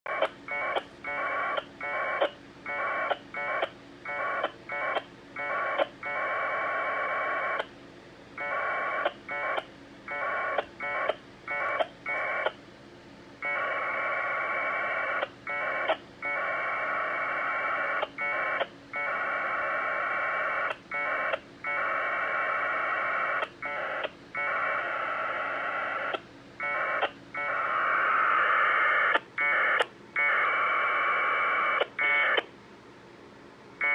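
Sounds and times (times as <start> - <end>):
warbling two-tone data bursts: 8.4 - 12.6, 13.4 - 32.4.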